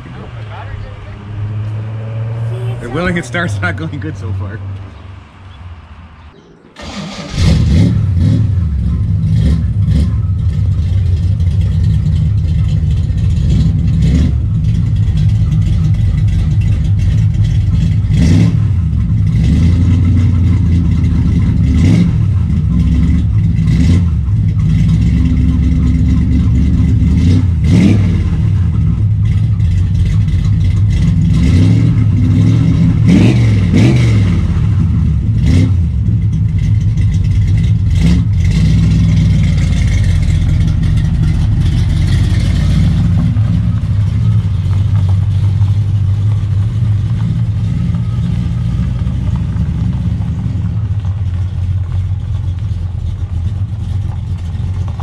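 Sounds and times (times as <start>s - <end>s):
car engine starting and revving: 0.0s - 55.0s.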